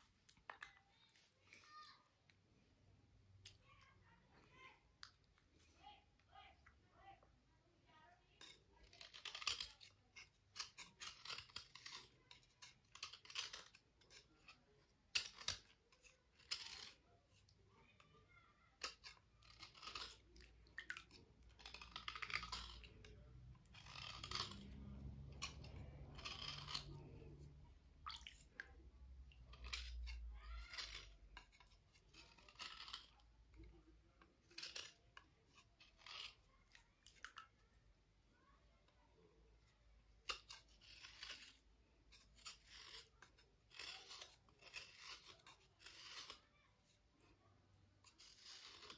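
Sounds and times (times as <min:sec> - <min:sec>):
scraping against stone: 0:08.3 - 0:17.6, 0:18.8 - 0:37.5, 0:40.2 - 0:47.3, 0:48.0 - 0:48.9.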